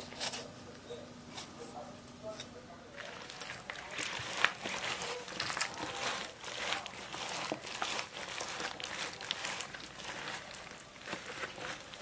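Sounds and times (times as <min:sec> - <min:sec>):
crackling leaves: 0:03.0 - 0:12.0
wet squishing of cabbage leaves: 0:03.0 - 0:12.0.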